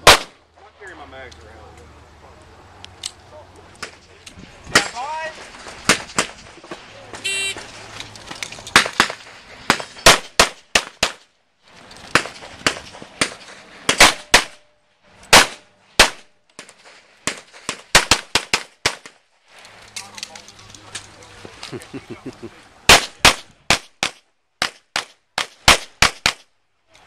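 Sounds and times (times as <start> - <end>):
handgun shots: 12.2 - 14.6.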